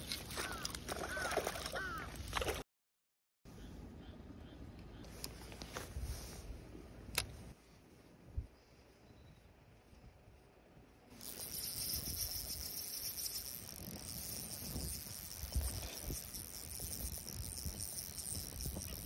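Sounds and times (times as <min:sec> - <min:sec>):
fishing reel whirring: 0:11.2 - 0:19.0.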